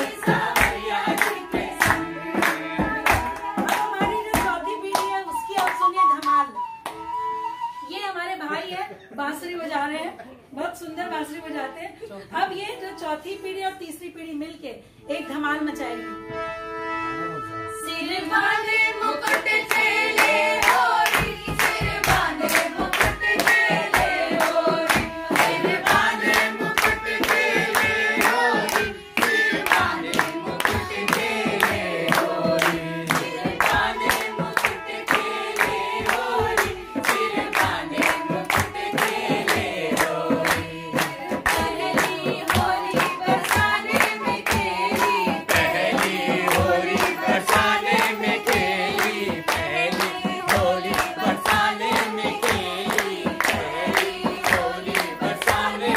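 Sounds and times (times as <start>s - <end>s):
group singing folk song: 0.0s - 4.6s, 17.9s - 55.9s
rhythmic hand-clapping: 0.0s - 7.2s, 18.4s - 55.9s.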